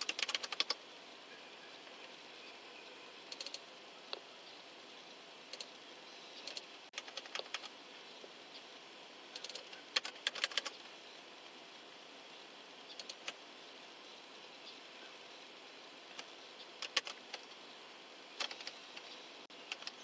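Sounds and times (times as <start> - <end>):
typing on computer keyboard: 0.0 - 0.8, 6.5 - 7.7, 9.4 - 10.8, 16.2 - 17.4, 18.4 - 18.8, 19.7 - 20.0
faint steady hiss: 0.0 - 20.0.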